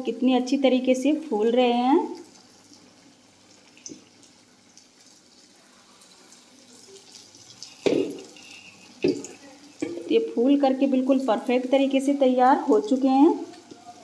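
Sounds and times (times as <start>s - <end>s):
syrup bubbling: 2.1s - 11.3s.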